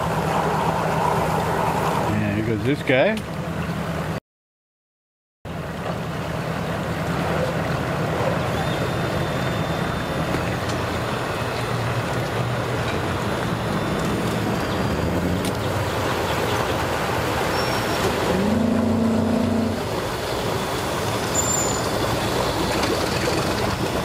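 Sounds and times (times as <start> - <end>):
water churning: 0.0 - 4.2, 5.5 - 24.0
outboard motor running: 5.5 - 24.0.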